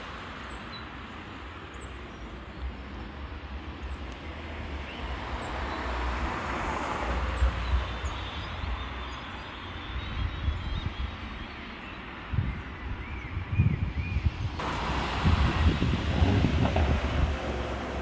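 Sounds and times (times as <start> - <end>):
passing traffic: 0.0 - 18.0
wind on microphone: 12.2 - 18.0.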